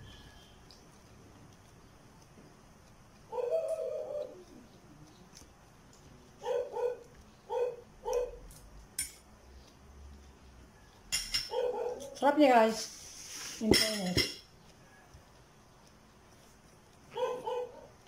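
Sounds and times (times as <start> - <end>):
dog barking: 3.3 - 4.5, 6.4 - 8.4, 11.5 - 12.2, 17.1 - 18.0.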